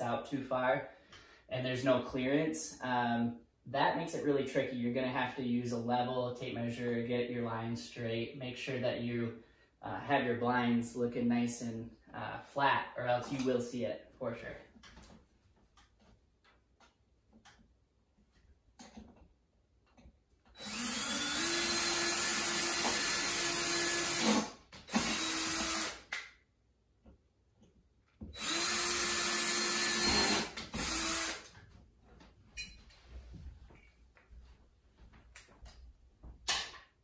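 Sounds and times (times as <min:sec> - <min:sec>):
cordless drill whining: 0:20.6 - 0:26.1, 0:28.3 - 0:31.5.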